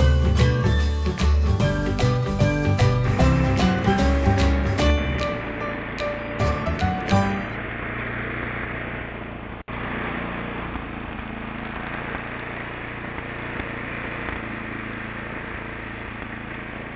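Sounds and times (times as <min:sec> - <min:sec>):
snowblower engine running: 0:00.0 - 0:16.9.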